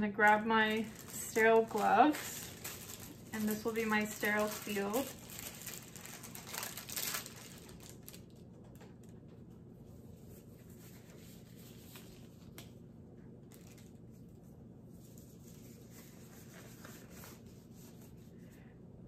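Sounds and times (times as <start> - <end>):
paper wrapper crinkling: 0.2 - 9.3, 10.3 - 12.8, 13.4 - 14.4, 15.0 - 18.3
faint clicks of gloves handled: 12.5 - 12.8.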